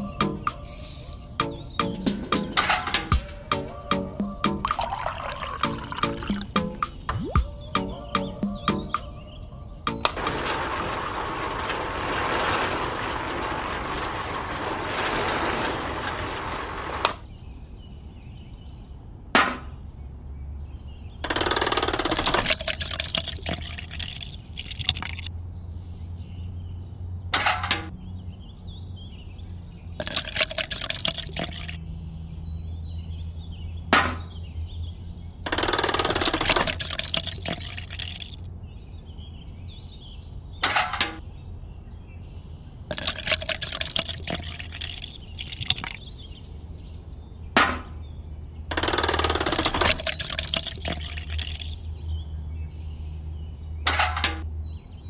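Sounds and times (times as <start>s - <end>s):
wet cement sloshing: 10.2s - 17.2s, 22.1s - 25.3s, 30.0s - 31.8s, 36.1s - 38.5s, 42.9s - 46.0s, 49.5s - 51.9s.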